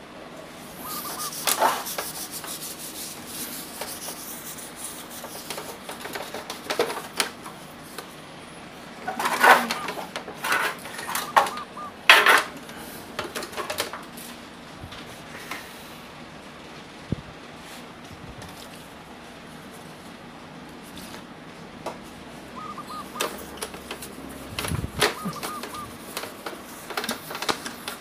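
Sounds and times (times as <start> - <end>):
tissue wiping over fan parts: 0.6 - 8.2, 22.0 - 28.0.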